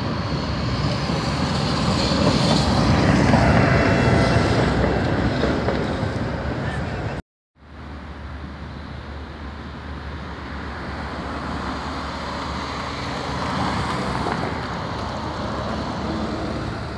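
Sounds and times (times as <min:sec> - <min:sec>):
bus driving past: 0:00.0 - 0:16.9
cars driving past: 0:09.4 - 0:16.9.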